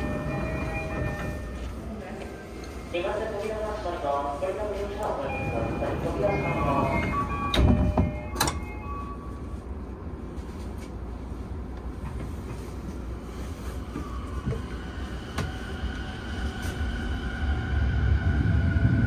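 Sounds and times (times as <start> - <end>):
electric train rumble: 0.0 - 19.0
train door knocking shut: 7.5 - 8.6.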